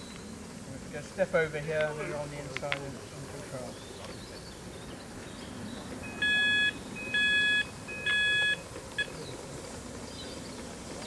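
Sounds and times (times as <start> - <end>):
electronic beeps: 6.0 - 9.1.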